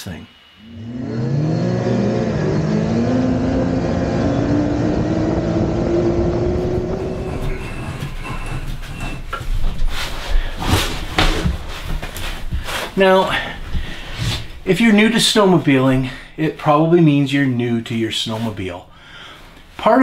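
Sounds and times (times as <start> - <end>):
snowmobile engine running: 0.8 - 9.2.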